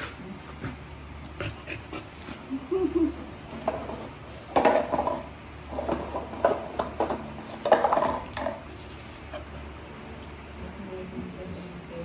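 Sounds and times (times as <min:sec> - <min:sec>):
dog scuffling on tiled floor: 0:03.5 - 0:09.6.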